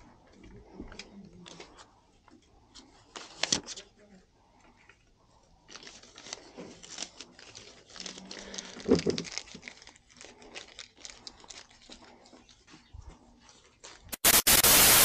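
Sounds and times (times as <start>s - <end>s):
paper banknotes crinkling: 5.5s - 14.3s.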